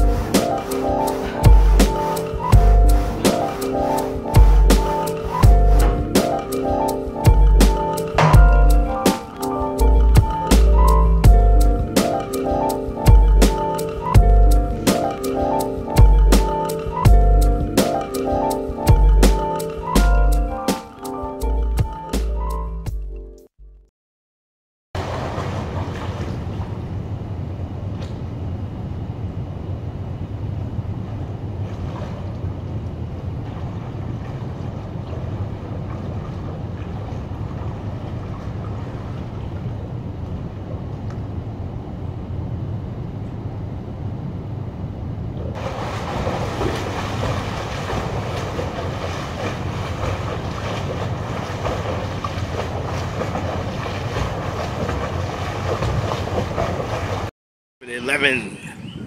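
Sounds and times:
indoor pool hall rumble and hiss: 0.0 - 7.3, 25.0 - 33.5
swimmer splashing: 0.0 - 9.5, 25.0 - 27.1, 31.6 - 39.9, 45.6 - 57.3.

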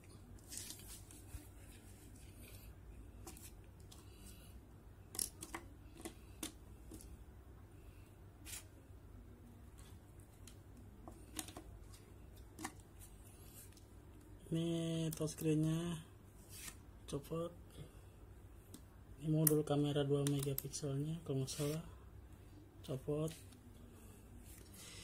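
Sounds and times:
faint low hum: 0.0 - 25.0
plastic parts clicking: 5.1 - 7.1.

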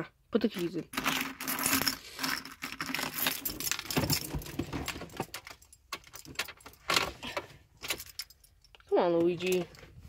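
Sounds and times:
car keys jangling: 2.7 - 6.9, 7.8 - 8.8.

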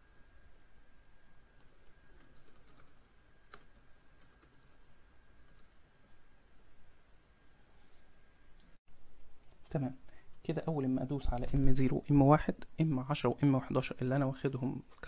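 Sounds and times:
faint high-pitched whine: 0.0 - 15.0
typing on a keyboard: 1.6 - 5.8.

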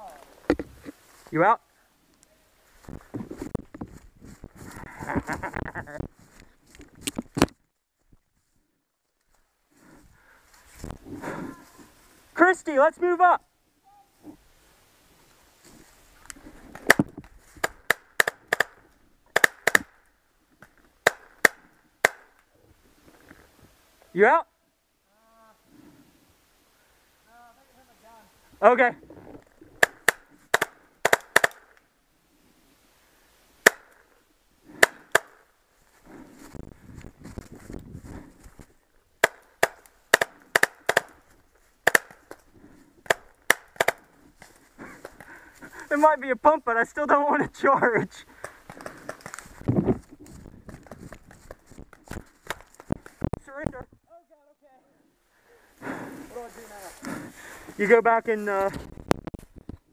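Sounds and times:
paintball markers firing: 16.8 - 20.0, 21.0 - 22.4, 29.8 - 31.8, 33.6 - 34.0, 34.8 - 35.4, 39.2 - 41.2, 41.8 - 42.4, 43.0 - 44.0
footsteps in dry leaves: 56.2 - 58.6.

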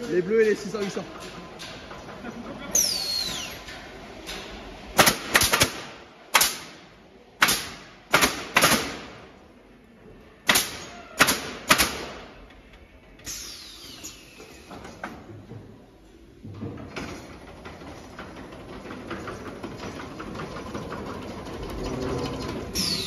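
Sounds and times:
nail guns firing: 5.0 - 9.4, 10.4 - 12.5.

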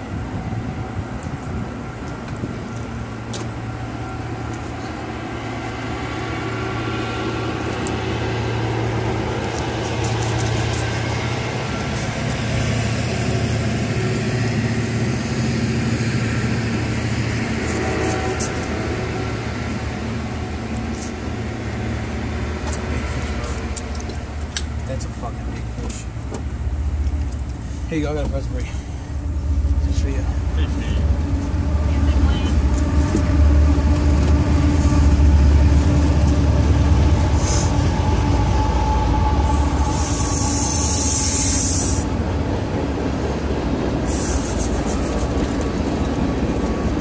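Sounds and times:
low mechanical rumble: 0.0 - 47.0
high hiss: 37.3 - 42.2, 44.0 - 45.3.

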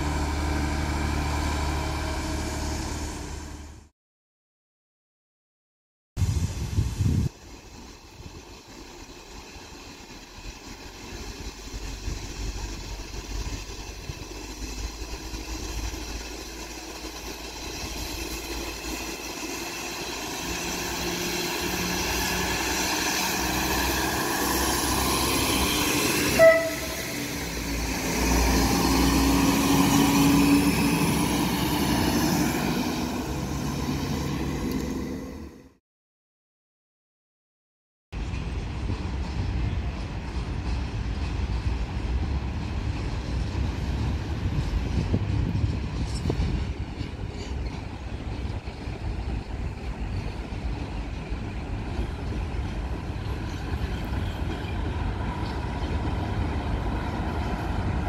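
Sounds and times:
train engine and wheels: 0.0 - 3.9, 6.2 - 35.8, 38.1 - 58.0
train horn blast: 26.1 - 27.3.

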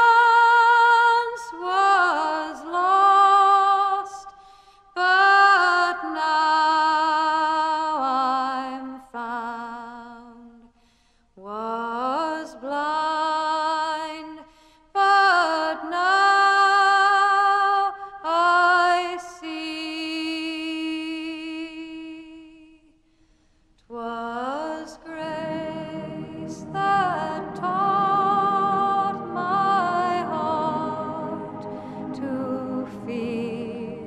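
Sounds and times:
slow song with solo singer: 23.9 - 34.0.

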